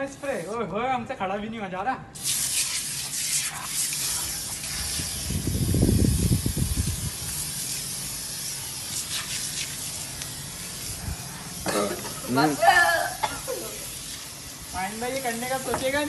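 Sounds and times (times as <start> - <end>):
aerosol spray can hissing: 2.2 - 16.0.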